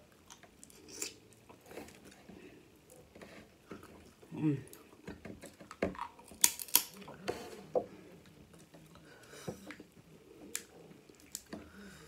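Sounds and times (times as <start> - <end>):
crab shell cracking: 5.8 - 7.0, 10.5 - 11.5.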